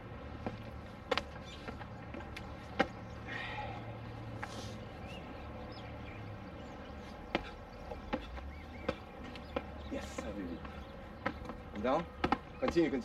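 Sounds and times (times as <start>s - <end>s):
low steady hum: 0.0s - 13.0s
sharp knocks: 7.3s - 13.0s.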